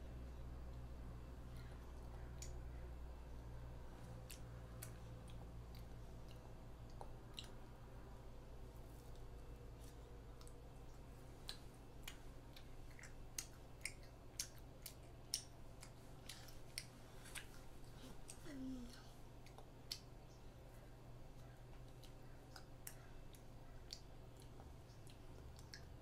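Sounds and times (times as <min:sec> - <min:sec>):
low steady hum: 0:00.0 - 0:26.0
child chewing: 0:00.8 - 0:02.9, 0:03.9 - 0:26.0
wet mouth clicks and lip smacks: 0:09.9 - 0:17.6, 0:19.4 - 0:20.2.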